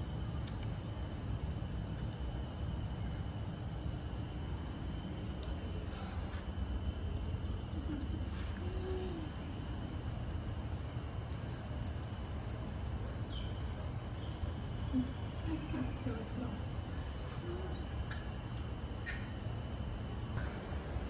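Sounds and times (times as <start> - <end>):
low room hum: 0.0 - 21.0
bell and beads jingling: 7.0 - 8.0, 10.0 - 16.6.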